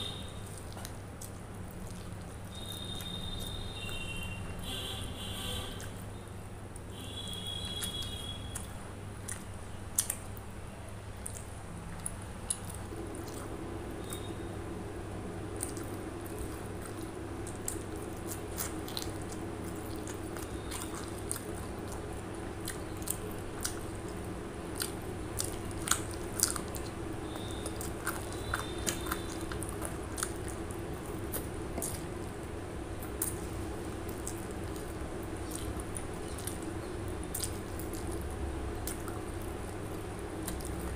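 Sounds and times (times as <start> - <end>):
person chewing food: 0.0 - 4.8, 5.6 - 40.9
wet mouth clicks and smacks: 7.6 - 10.5, 11.1 - 14.3, 15.6 - 32.1, 33.0 - 40.9.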